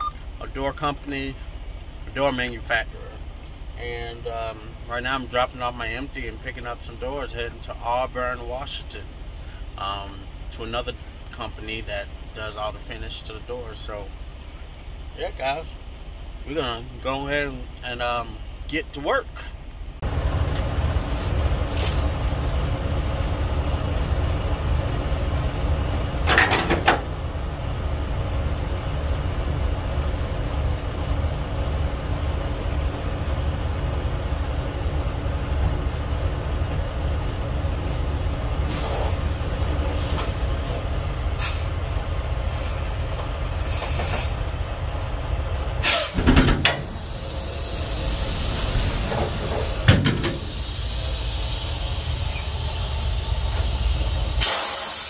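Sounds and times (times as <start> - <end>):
truck diesel engine running: 20.0 - 55.0
air hissing bursts: 38.7 - 41.8, 42.4 - 44.5, 45.8 - 55.0.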